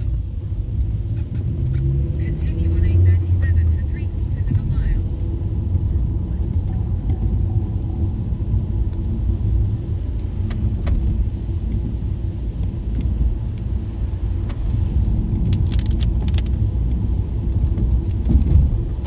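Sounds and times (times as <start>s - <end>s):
car engine and tyre rumble: 0.0s - 19.0s.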